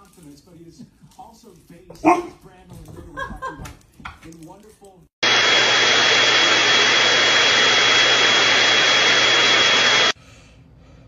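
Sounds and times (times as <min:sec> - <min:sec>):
handheld vacuum cleaner whine: 0:05.2 - 0:10.2.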